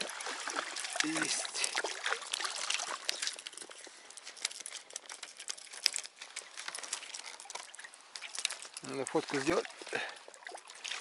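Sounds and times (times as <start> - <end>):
fish splashing: 0.0 - 11.0
thin ice crackling and breaking: 2.2 - 9.4.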